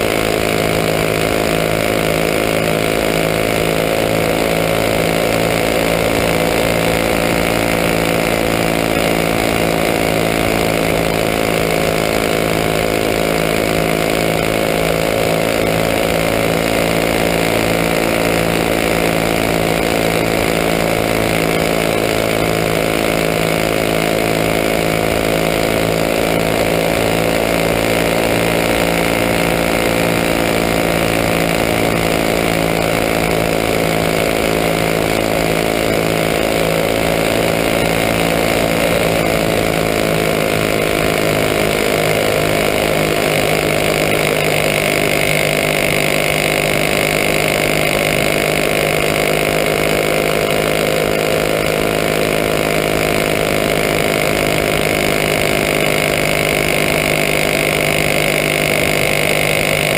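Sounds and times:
kart engine at high revs: 0.0s - 59.9s.

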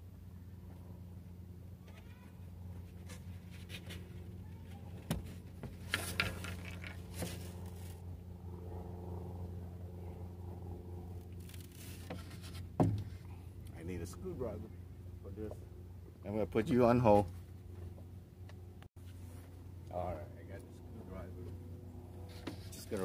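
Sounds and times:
steady low hum: 0.0s - 23.0s
wooden knocks and scrapes: 11.8s - 13.2s.

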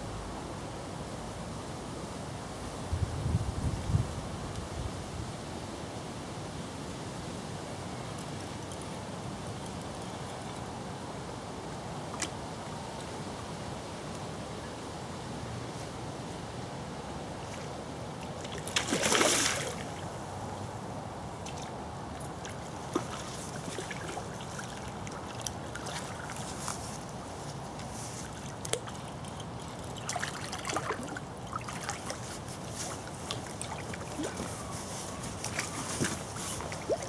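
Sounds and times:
river water rushing: 17.3s - 20.8s, 21.4s - 37.0s
fish splashing at surface: 18.6s - 19.9s.

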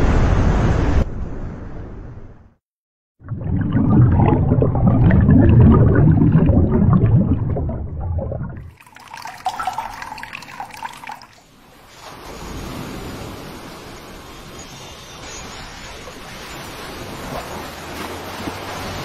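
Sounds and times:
mug filling with water: 3.2s - 11.4s
steady wash of water: 3.2s - 14.6s, 15.6s - 19.0s
water rushing and gurgling: 3.2s - 19.0s
water trickling and splashing: 3.2s - 19.0s.

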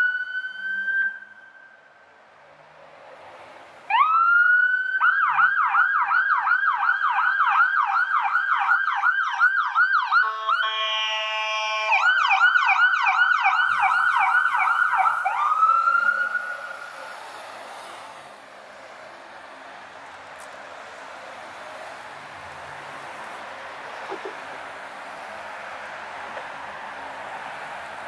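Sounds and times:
ambulance siren: 0.0s - 2.0s, 3.9s - 28.0s
blaring horn tone: 10.2s - 12.0s.

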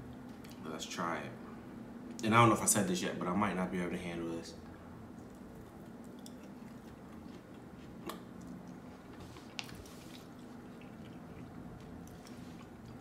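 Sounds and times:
steady low hum: 0.0s - 13.0s
chewing and mouth sounds: 5.1s - 13.0s.

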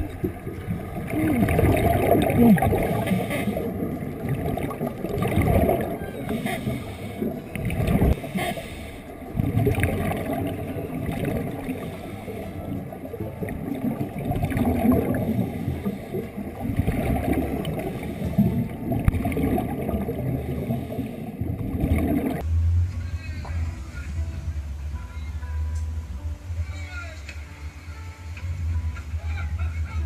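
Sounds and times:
water churning and gurgling: 0.0s - 22.5s.

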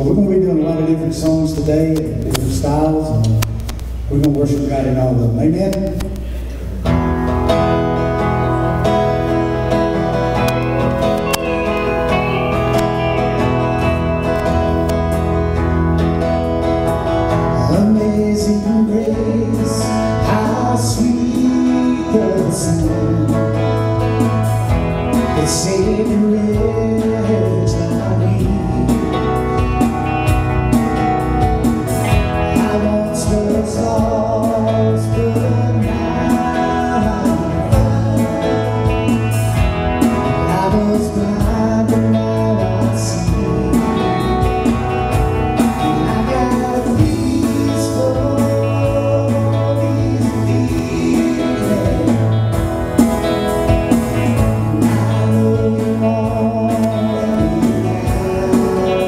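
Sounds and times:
man singing: 0.0s - 6.4s, 17.3s - 30.8s, 32.1s - 59.0s
acoustic guitars strumming: 0.0s - 59.0s
drum kit: 0.0s - 59.0s
electric bass: 0.0s - 59.0s.

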